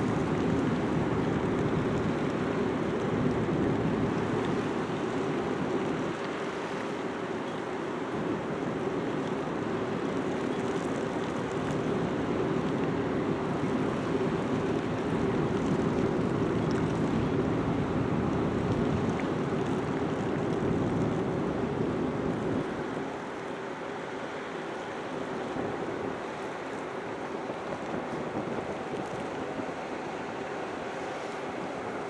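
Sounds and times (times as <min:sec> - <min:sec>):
wind noise: 0:00.0 - 0:07.1, 0:25.4 - 0:32.0
water wash: 0:00.0 - 0:32.0.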